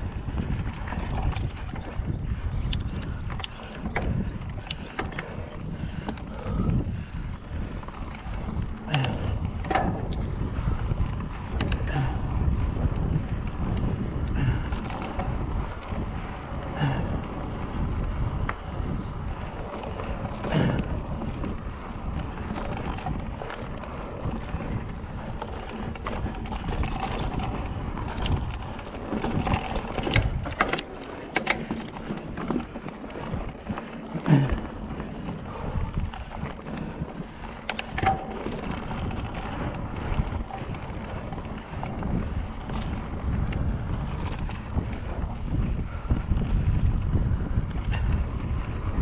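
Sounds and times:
wind buffeting microphone: 0.0 - 49.0
sharp clicks and knocks: 37.6 - 40.8.

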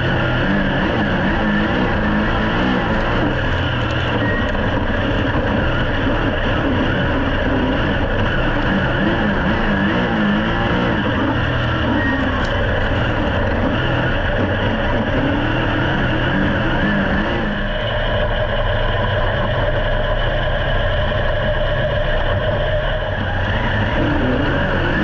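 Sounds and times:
race car engine running hard: 0.0 - 25.0.

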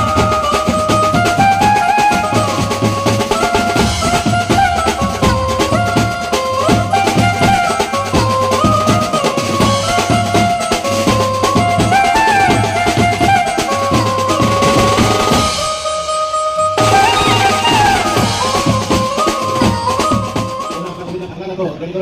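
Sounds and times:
fast drumming: 0.0 - 16.1, 16.8 - 21.3
lead melody sliding between notes: 0.0 - 21.0
cymbals: 0.0 - 21.2.

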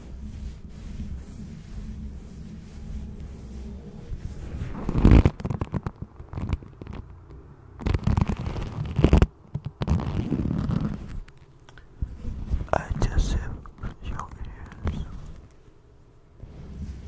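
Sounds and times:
leather gloves creaking: 4.7 - 11.5.

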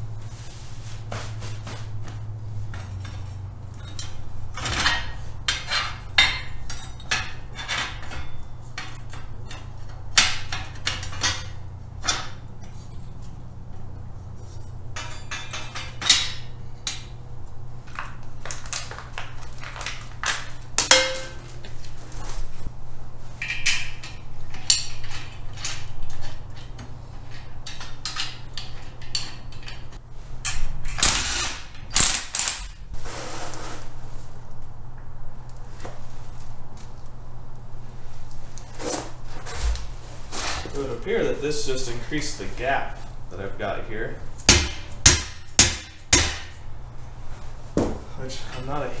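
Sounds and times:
steady low hum: 0.0 - 49.0
metal clanks and knocks: 2.6 - 13.8, 14.9 - 17.2, 19.9 - 21.8, 23.4 - 32.8, 44.4 - 46.6.

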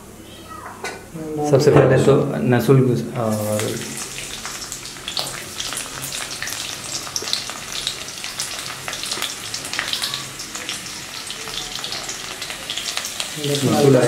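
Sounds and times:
seeds frying in hot oil: 3.2 - 14.0.

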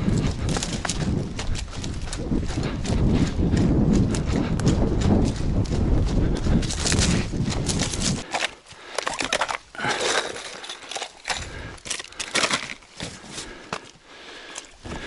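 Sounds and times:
gear rustling and scraping: 0.0 - 3.1, 6.4 - 14.0.

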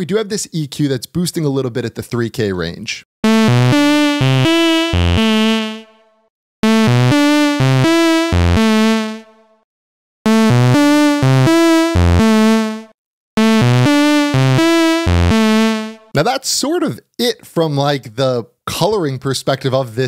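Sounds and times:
synth lead melody: 3.2 - 9.6, 10.3 - 16.2.

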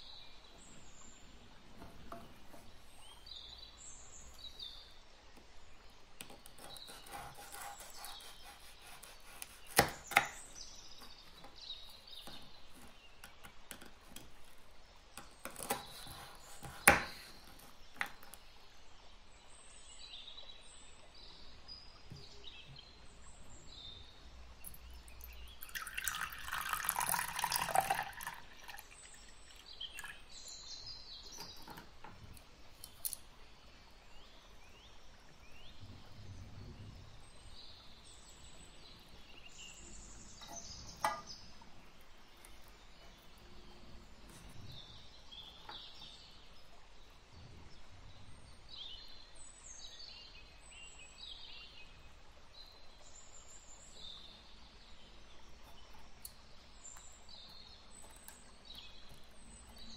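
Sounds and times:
liquid pouring into a bowl: 25.2 - 30.2.

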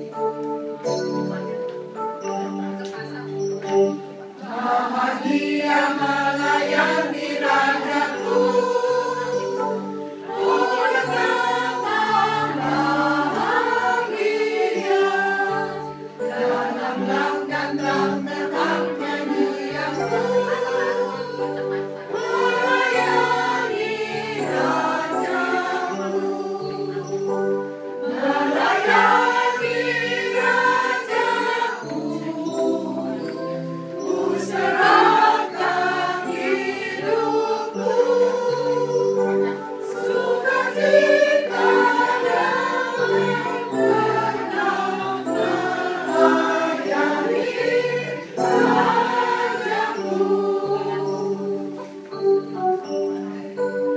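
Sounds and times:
choir singing a hymn: 3.4 - 53.9.

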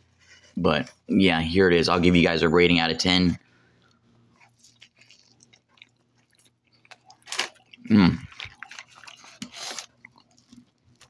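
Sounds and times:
person chewing crusty pizza: 3.6 - 11.0.

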